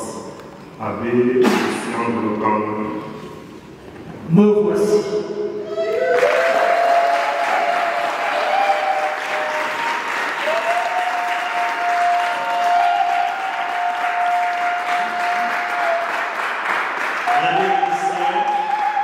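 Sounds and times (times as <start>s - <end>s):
audience applauding: 5.8s - 19.0s.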